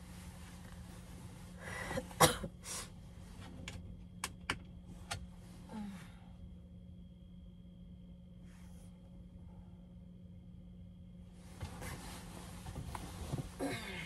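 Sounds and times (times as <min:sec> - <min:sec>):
steady low hum: 0:00.0 - 0:14.0
person coughing: 0:01.9 - 0:02.8, 0:13.6 - 0:14.0.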